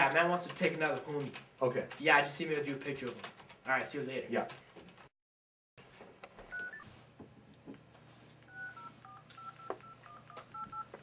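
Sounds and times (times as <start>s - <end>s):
phone keypad beeps: 6.5s - 6.8s, 8.5s - 11.0s.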